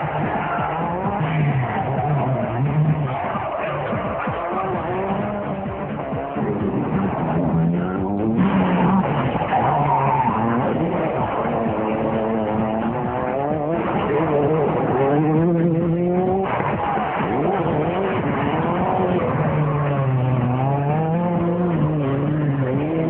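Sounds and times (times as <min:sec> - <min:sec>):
tyres on gravel: 0:00.0 - 0:15.3
rally car engines revving: 0:00.0 - 0:23.0.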